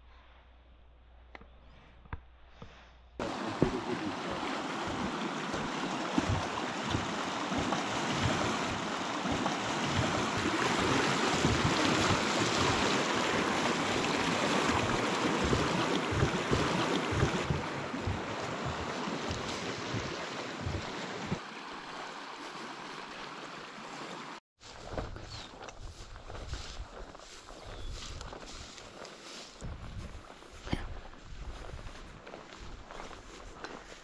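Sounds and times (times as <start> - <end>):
fast-flowing creek rushing: 3.2 - 24.4.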